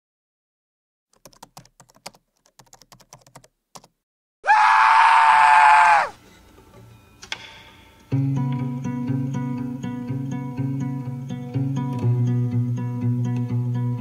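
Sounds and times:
keyboard typing clicks: 0:01.1 - 0:03.9
high-pitched scream: 0:04.4 - 0:06.2.

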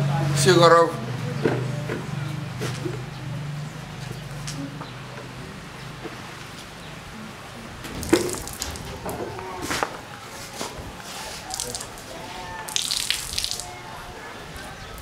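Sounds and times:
water splashing on concrete: 0:07.8 - 0:10.0, 0:11.1 - 0:13.8.

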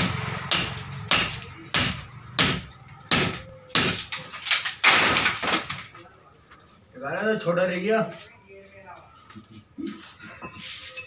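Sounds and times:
hammer striking concrete: 0:00.0 - 0:04.2
crumbling concrete and plaster: 0:03.7 - 0:06.2.

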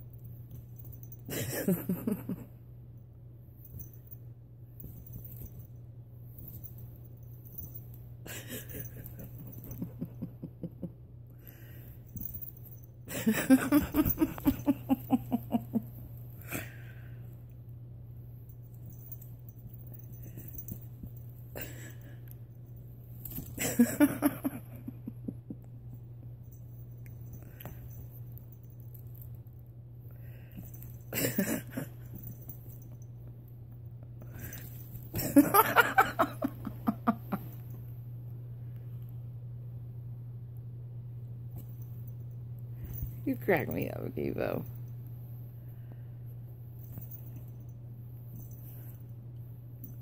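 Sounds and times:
low hum: 0:00.0 - 0:50.0
woman laughing: 0:01.3 - 0:02.5, 0:08.3 - 0:11.0, 0:13.1 - 0:15.9, 0:23.6 - 0:25.5, 0:35.2 - 0:37.4.

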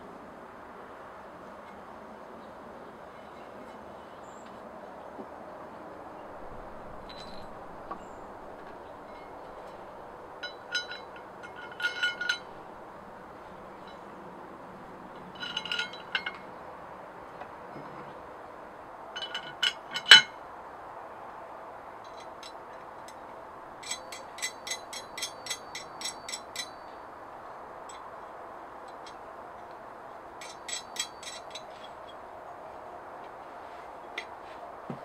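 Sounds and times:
metal clamp clinking: 0:06.4 - 0:12.8, 0:15.0 - 0:16.5, 0:19.2 - 0:20.3, 0:23.8 - 0:27.0, 0:30.4 - 0:32.2.

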